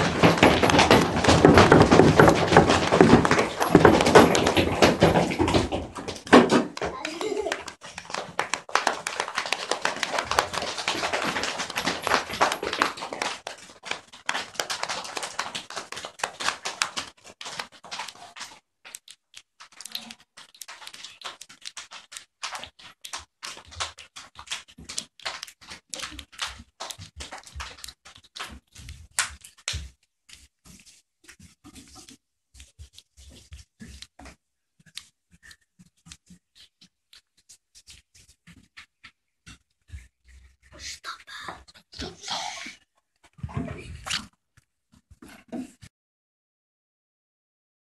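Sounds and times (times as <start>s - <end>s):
scattered taps and clicks: 0.0s - 40.2s
children patting and clapping: 0.0s - 44.3s.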